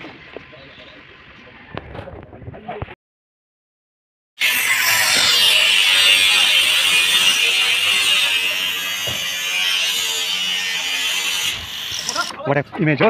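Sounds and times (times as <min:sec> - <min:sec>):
electric motor whining: 0:04.4 - 0:12.4.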